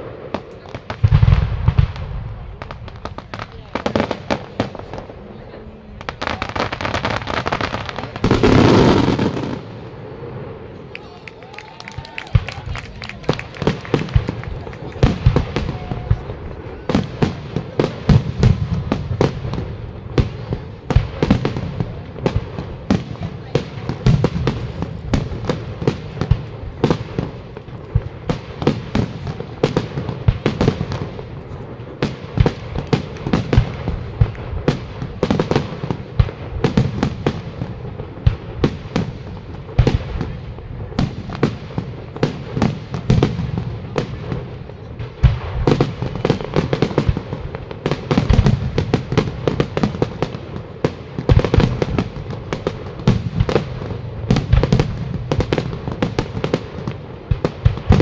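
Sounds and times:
firework shells bursting: 0:10.9 - 0:16.4.

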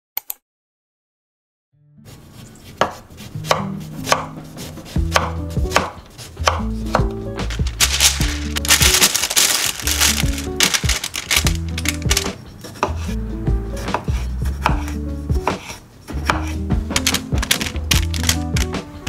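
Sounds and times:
knife chopping on wooden board: 0:02.7 - 0:07.6, 0:12.2 - 0:13.1, 0:13.8 - 0:18.2
parchment paper crinkling: 0:07.4 - 0:12.4, 0:17.0 - 0:18.8.

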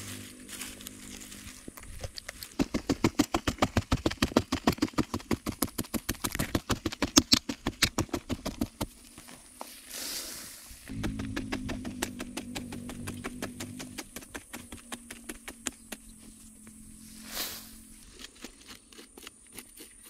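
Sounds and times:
fast sharp knocks: 0:10.9 - 0:16.0.

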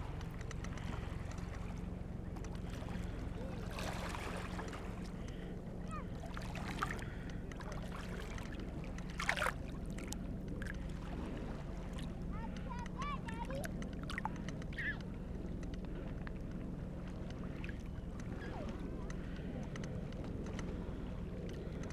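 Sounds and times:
lake waves lapping: 0:00.0 - 0:21.9
water splash: 0:09.1 - 0:10.8.

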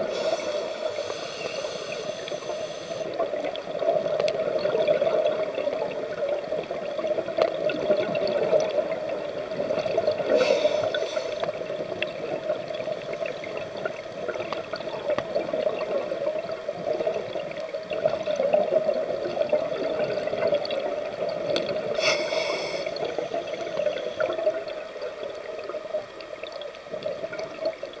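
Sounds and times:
scuba regulator breath hissing: 0:00.0 - 0:03.2, 0:10.3 - 0:11.6, 0:22.0 - 0:24.2
underwater water wash: 0:00.0 - 0:28.0.

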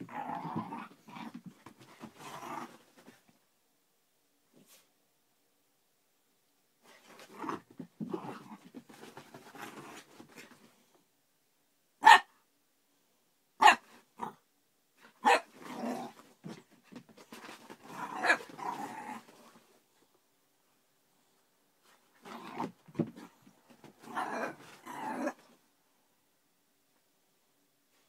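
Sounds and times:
puppy growling: 0:00.0 - 0:01.4, 0:17.8 - 0:19.3, 0:24.0 - 0:25.4
puppy barking: 0:12.0 - 0:12.3, 0:13.6 - 0:13.8, 0:15.2 - 0:15.5.

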